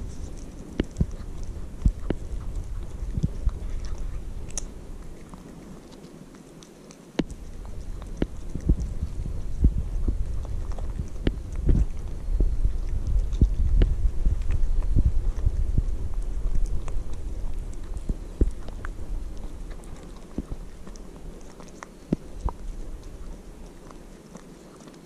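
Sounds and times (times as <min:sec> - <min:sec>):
kitten chewing food: 0:00.0 - 0:25.0
low thumps: 0:08.2 - 0:19.3.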